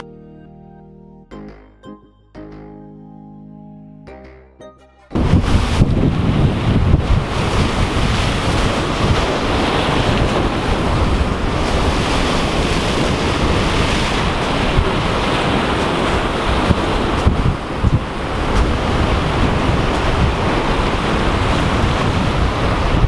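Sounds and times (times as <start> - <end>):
ocean waves breaking on rocks: 5.2 - 23.0
wind buffeting microphone: 5.2 - 23.0.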